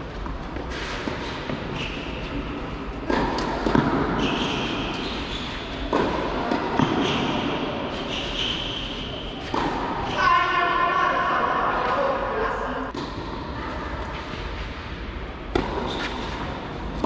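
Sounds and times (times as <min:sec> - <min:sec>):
tennis ball bouncing: 0:01.0 - 0:08.4, 0:09.3 - 0:10.0, 0:15.5 - 0:17.0
racket striking tennis ball: 0:01.0 - 0:10.1, 0:15.5 - 0:17.0.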